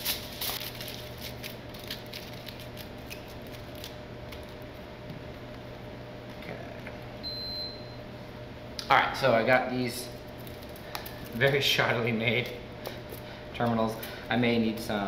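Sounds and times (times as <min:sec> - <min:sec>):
aluminum foil crinkling: 0:00.0 - 0:04.6, 0:10.3 - 0:11.7
low electrical hum: 0:00.0 - 0:15.0.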